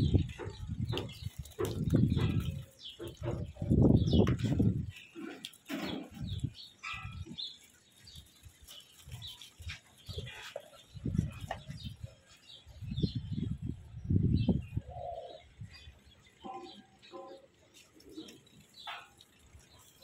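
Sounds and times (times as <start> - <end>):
sheep rustling and bumping: 0.0 - 13.2
small birds chirping: 0.0 - 20.0.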